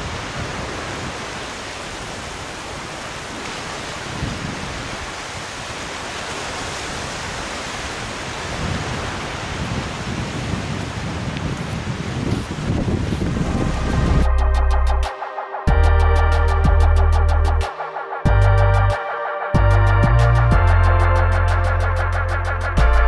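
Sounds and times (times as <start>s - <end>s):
wind gusts on microphone: 0.0s - 15.0s.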